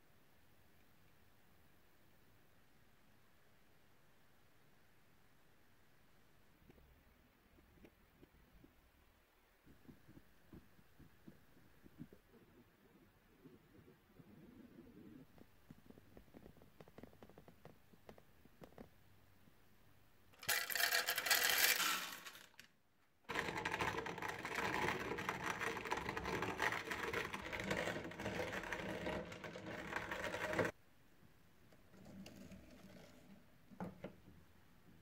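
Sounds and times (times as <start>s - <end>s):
coffee grinder crunching beans: 20.4s - 22.7s, 23.3s - 30.7s.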